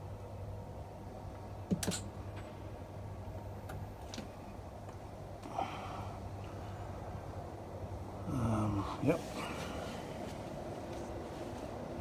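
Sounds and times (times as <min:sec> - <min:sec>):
low electrical hum: 0:00.0 - 0:12.0
switch and relay clicks: 0:01.7 - 0:02.1.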